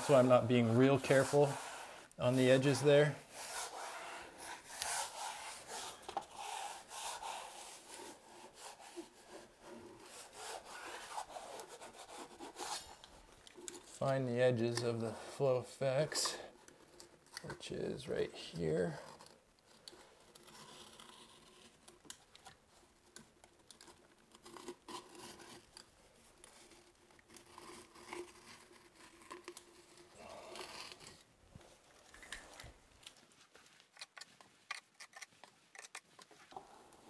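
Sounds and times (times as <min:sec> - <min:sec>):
sheet crinkling and clicking: 0:19.2 - 0:36.6.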